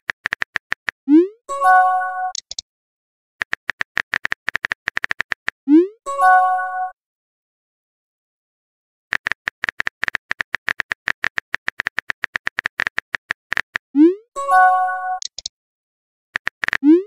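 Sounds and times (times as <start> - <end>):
phone keyboard key clicks: 0.1 - 1.0, 2.3 - 2.6, 3.4 - 5.6, 9.1 - 13.8, 15.2 - 15.5.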